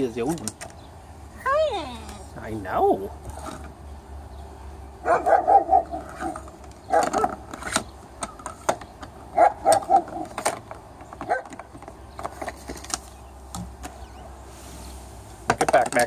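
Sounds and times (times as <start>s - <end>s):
big dog barking: 5.0s - 7.4s, 9.4s - 10.4s.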